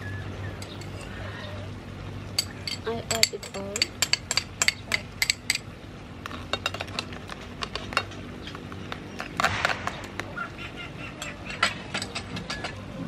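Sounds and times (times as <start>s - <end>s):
metal spoon clinking on bowl: 0.6s - 1.1s, 2.4s - 5.6s
spoon scraping in pan: 0.6s - 1.2s.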